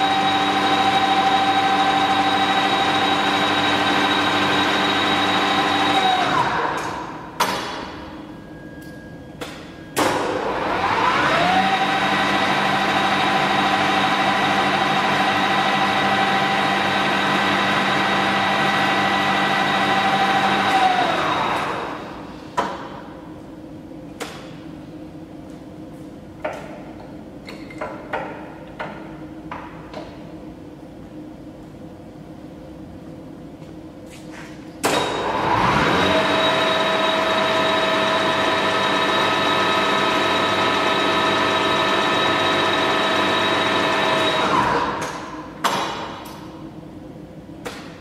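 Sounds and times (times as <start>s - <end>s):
lathe spindle whirring: 0.0s - 6.9s, 10.4s - 22.1s, 35.2s - 45.0s.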